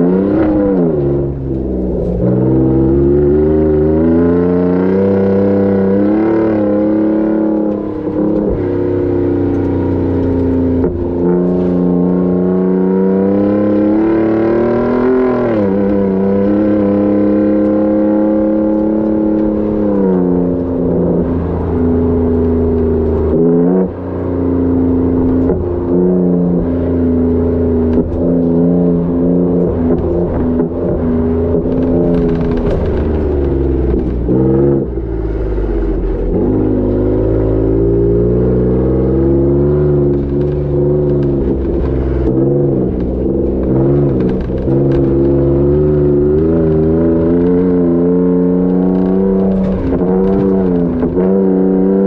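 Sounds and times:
truck exhaust note: 18.6 - 52.0.

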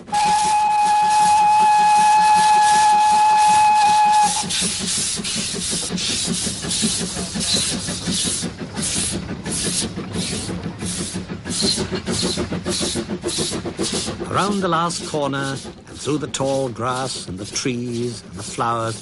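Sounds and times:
steam locomotive whistle: 0.0 - 4.9
steam locomotive exhaust chuffs: 0.0 - 19.0.

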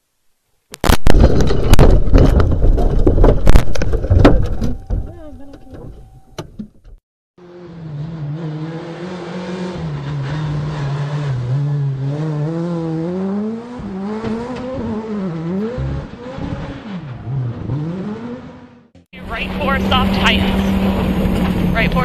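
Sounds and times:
rally car engine revving: 7.4 - 22.0.

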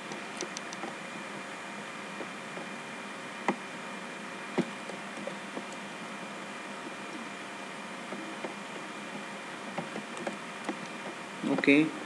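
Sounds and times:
faint electrical hum: 0.0 - 12.0
computer mouse clicks: 0.1 - 1.0, 4.6 - 5.8, 9.8 - 11.0.

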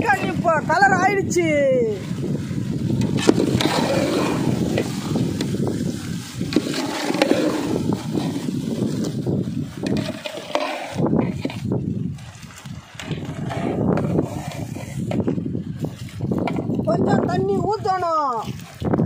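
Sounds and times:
ladle scraping metal pot: 2.9 - 5.7, 6.3 - 9.1, 9.7 - 11.7, 12.9 - 15.4.

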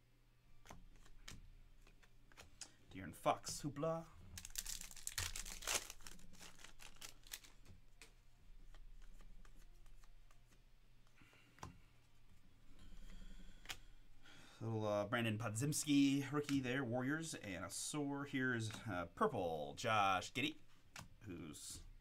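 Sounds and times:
cards clicking and rustling: 0.6 - 3.7, 4.3 - 11.7
wrapper tearing and crinkling: 4.3 - 7.7.

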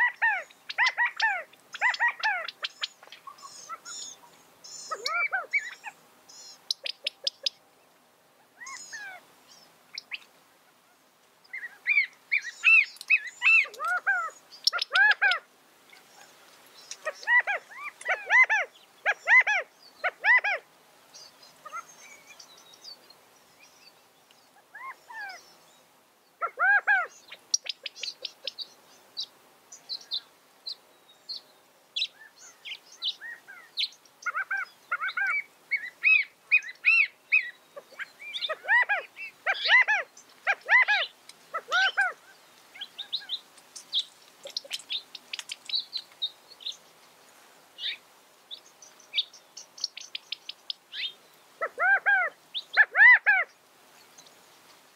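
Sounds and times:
quail calling: 0.0 - 7.6, 8.6 - 9.2, 11.5 - 15.5, 17.0 - 20.6, 21.6 - 21.9, 26.4 - 28.6, 33.1 - 42.2, 50.4 - 53.5
high bird chips: 37.8 - 46.8.

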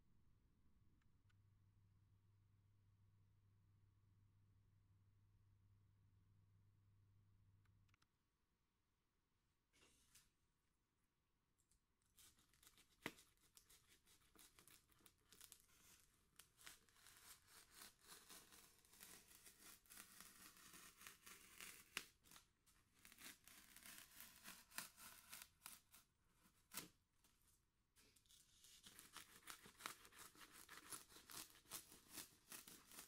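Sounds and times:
foam crackling and tearing: 12.6 - 22.4, 23.0 - 26.0, 28.8 - 33.0.

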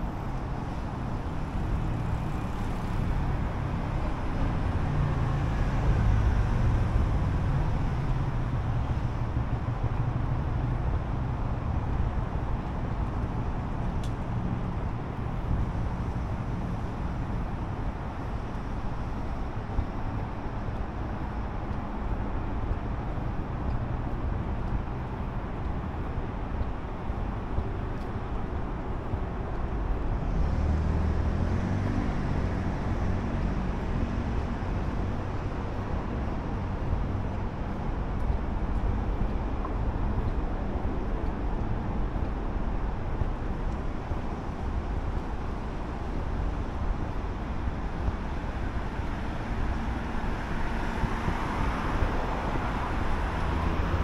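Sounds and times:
cars passing: 0.0 - 54.0
loud vehicle passing: 30.2 - 34.8.

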